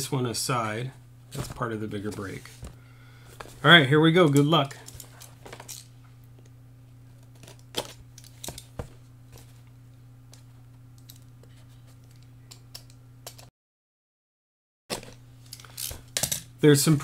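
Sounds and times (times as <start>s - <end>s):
steady low hum: 0.0s - 13.5s.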